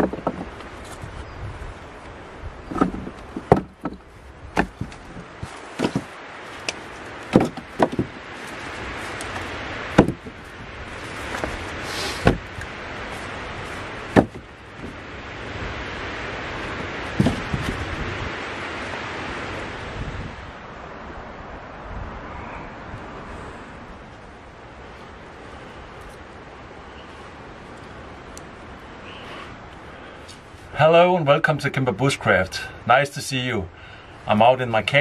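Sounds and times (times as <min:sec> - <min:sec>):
sharp knocks and clicks: 0:00.0 - 0:00.6, 0:02.7 - 0:04.0, 0:05.8 - 0:08.1
wind noise: 0:00.0 - 0:30.8.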